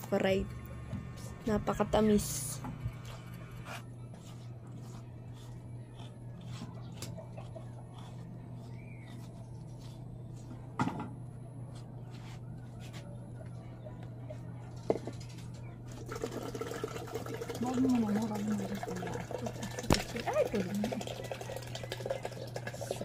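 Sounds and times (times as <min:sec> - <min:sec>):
steady low hum: 0:00.0 - 0:23.0
water pouring into plastic pitcher: 0:16.0 - 0:23.0.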